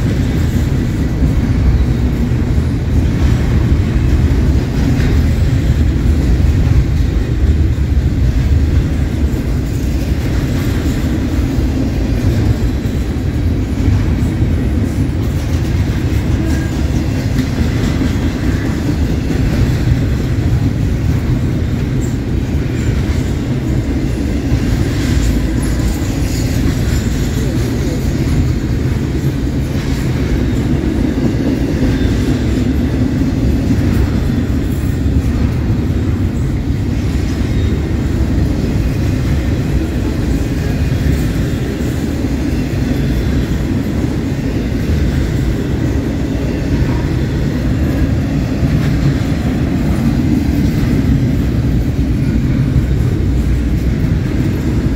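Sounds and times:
steel wheels on rail: 0.0s - 54.9s.

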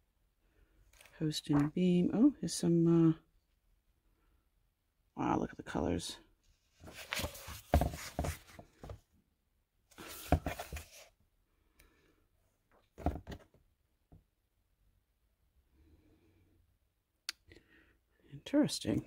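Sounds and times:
book pages turning: 6.8s - 9.0s, 10.0s - 11.1s.

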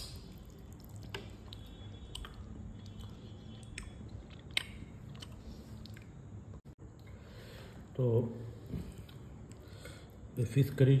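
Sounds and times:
person chewing food: 0.0s - 7.2s
low steady hum: 0.0s - 11.0s.

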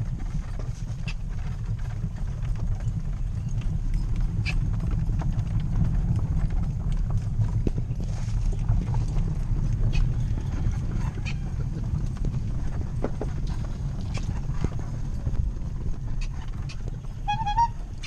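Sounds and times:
cart rumbling: 0.0s - 18.0s
horse hooves clip-clopping: 0.0s - 18.0s.

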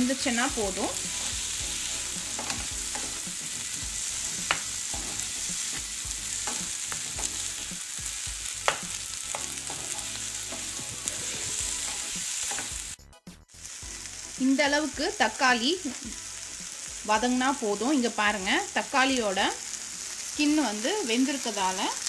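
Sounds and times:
vegetables sizzling in oil: 0.0s - 22.0s
spatula tapping pan: 4.4s - 7.4s, 8.6s - 10.8s.

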